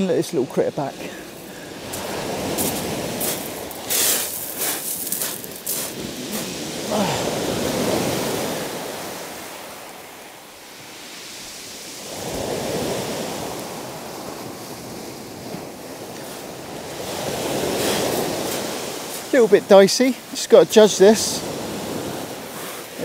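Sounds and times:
waves washing up shingle: 0.0 - 23.0.

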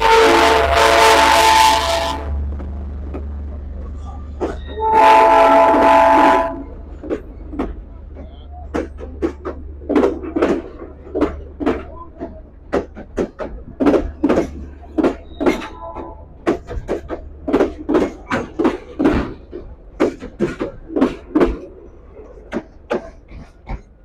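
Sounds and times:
locomotive air horn blast: 0.0 - 2.4, 4.6 - 6.8
train coaches clicking and knocking: 0.0 - 24.0
low engine rumble: 0.6 - 24.0.

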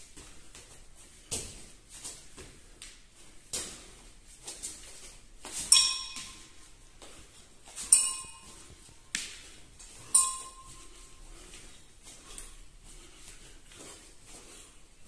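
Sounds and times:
kettlebell clanking with metallic ring: 5.6 - 6.8, 7.8 - 9.1, 10.0 - 11.2.

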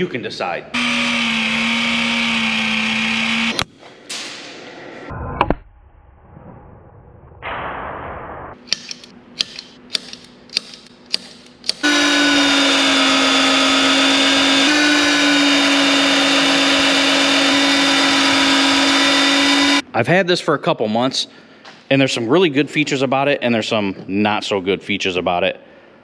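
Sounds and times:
drill bit boring through steel: 0.8 - 3.6, 11.8 - 19.8
drill motor whining: 0.8 - 3.6, 11.8 - 19.8
sharp clicks: 8.6 - 11.8.

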